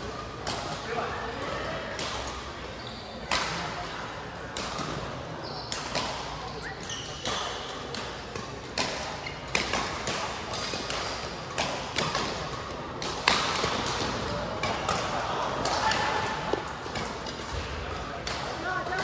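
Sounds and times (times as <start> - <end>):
rackets hitting shuttlecock: 4.5 - 5.0, 5.7 - 6.5, 7.1 - 19.0.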